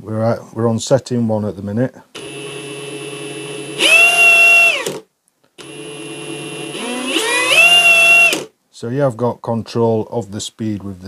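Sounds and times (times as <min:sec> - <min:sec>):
impact wrench motor whine: 0:02.2 - 0:08.5.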